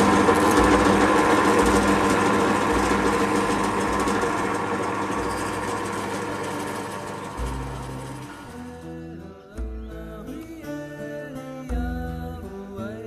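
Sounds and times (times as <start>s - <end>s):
drill press motor humming: 0.0s - 8.8s.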